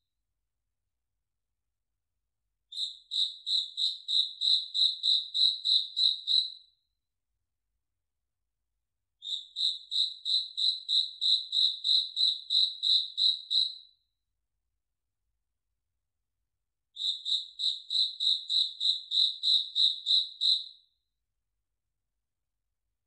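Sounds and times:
cricket chirping: 2.8s - 6.6s, 9.2s - 13.8s, 17.0s - 20.7s.

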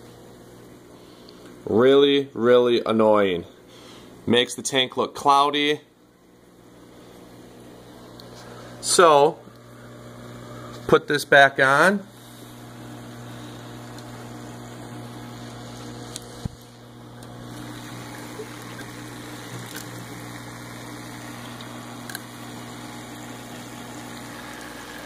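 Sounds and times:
pump hum: 6.1s - 25.0s
water running: 12.6s - 25.0s.

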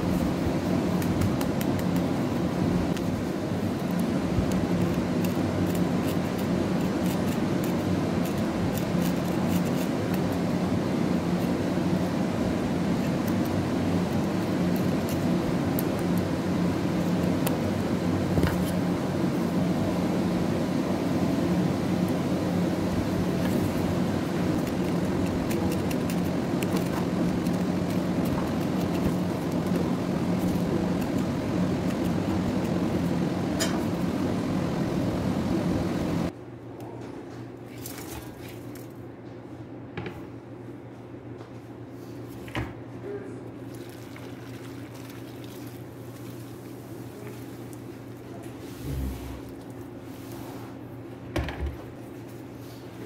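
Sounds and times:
low machine hum: 0.0s - 53.0s
knife slitting chilies: 2.9s - 10.6s, 23.3s - 34.0s.

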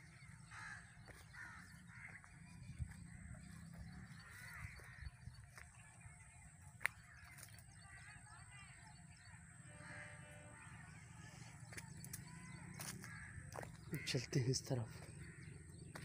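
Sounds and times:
birds calling: 0.0s - 16.0s.

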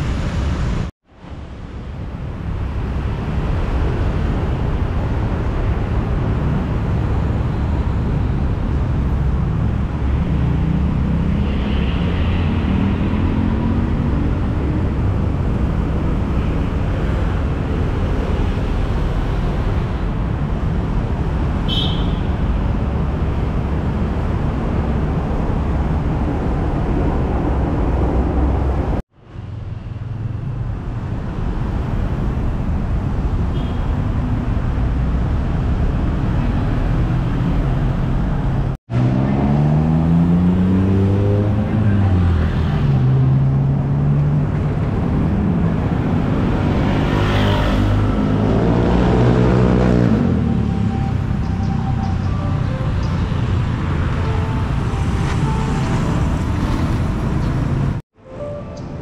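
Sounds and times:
rumble of passing vehicles: 0.0s - 59.0s
engine accelerating: 38.9s - 41.9s.

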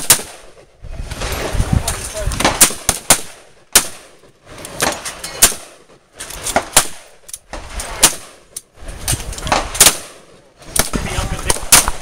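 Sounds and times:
rifle shots: 0.0s - 0.6s, 2.3s - 8.5s, 9.4s - 12.0s
fainter distant shots: 2.3s - 7.2s.

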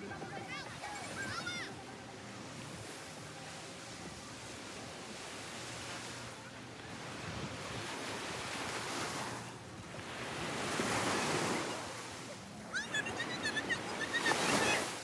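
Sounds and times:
ocean surf on beach: 0.0s - 15.0s
birds chirping: 12.7s - 14.8s.

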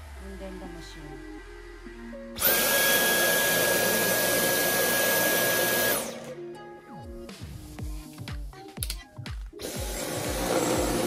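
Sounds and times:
vacuum cleaner motor whining: 2.4s - 6.4s, 9.6s - 11.0s.

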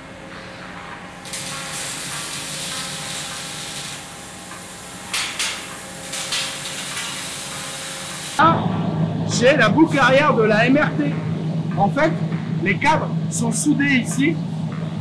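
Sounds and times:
steady hiss: 1.2s - 8.4s.

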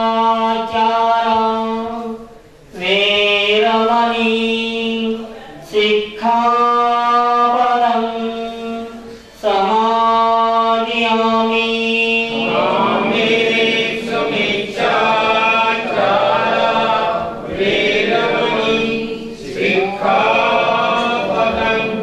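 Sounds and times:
group chanting in unison: 0.0s - 22.0s.

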